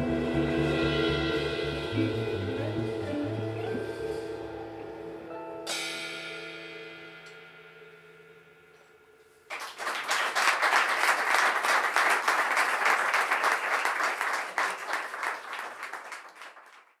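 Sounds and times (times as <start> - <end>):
jazz quartet playing: 0.0 - 5.7
audience applause: 9.5 - 17.0.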